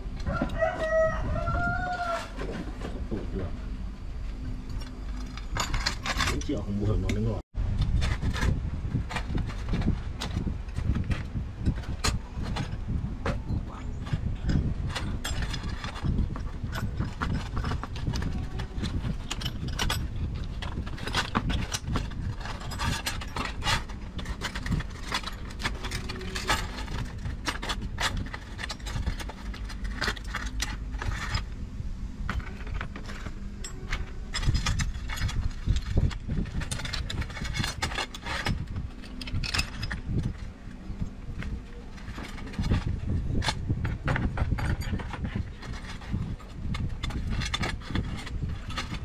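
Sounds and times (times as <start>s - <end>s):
low steady rumble: 0.0s - 49.0s
screwdriver scraping rusty iron: 4.7s - 31.6s, 32.3s - 49.0s
chain links jangling: 14.0s - 31.4s
metal clicks and clinks: 32.3s - 40.5s.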